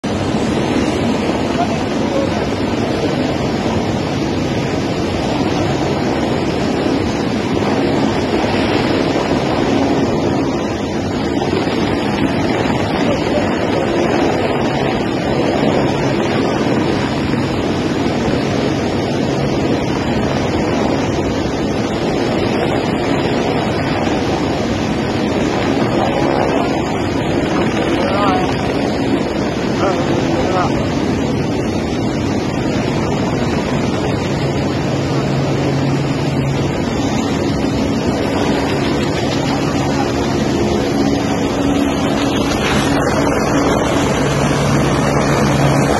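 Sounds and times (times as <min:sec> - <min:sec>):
fast-flowing water rushing: 0:00.0 - 0:45.9
helicopter hovering: 0:00.0 - 0:45.9.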